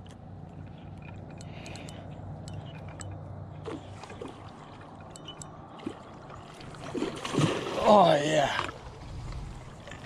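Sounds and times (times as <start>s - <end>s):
faint reel ticks: 0.0s - 3.3s, 4.8s - 5.6s.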